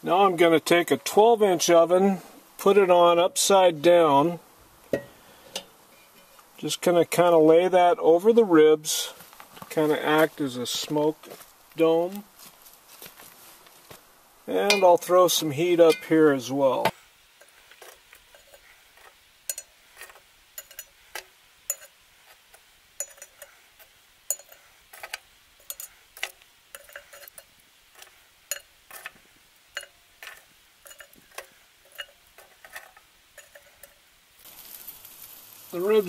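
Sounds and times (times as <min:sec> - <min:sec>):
metal tongs clicking: 0:19.5 - 0:22.0, 0:23.0 - 0:23.5, 0:24.3 - 0:29.2, 0:29.8 - 0:34.0.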